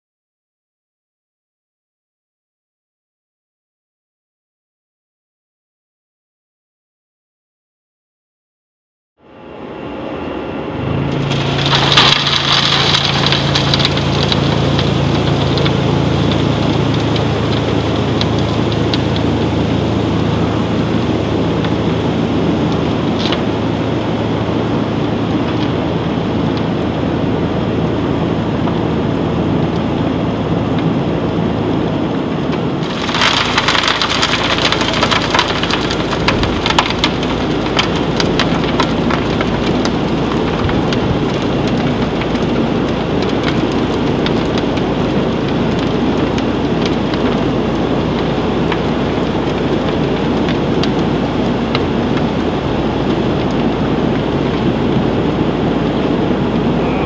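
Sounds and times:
low machine hum: 9.2s - 57.0s
crystals pouring over steel: 11.1s - 16.0s, 32.8s - 36.9s.

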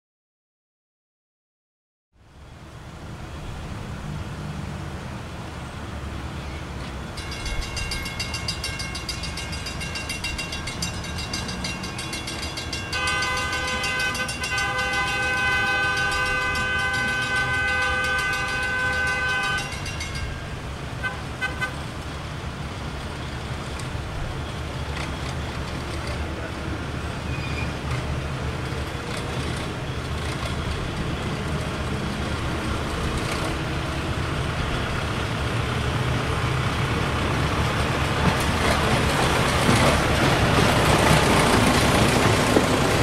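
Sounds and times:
crossing bell ringing: 7.0s - 21.2s
long horn blast: 12.9s - 19.8s, 21.0s - 21.9s.

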